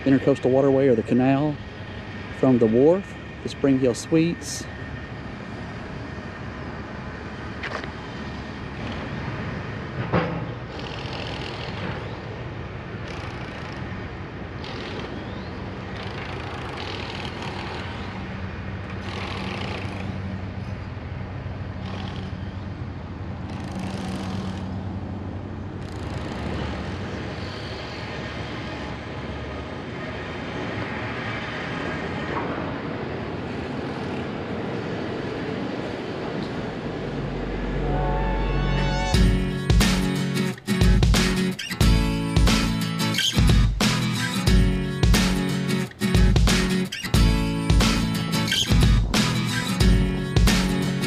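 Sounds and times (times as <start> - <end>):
distant road traffic: 0.0 - 51.0
low drone: 35.8 - 51.0.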